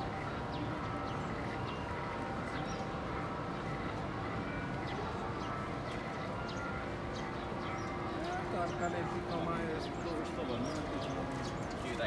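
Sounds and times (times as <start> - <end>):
murmur of voices: 8.0 - 12.0.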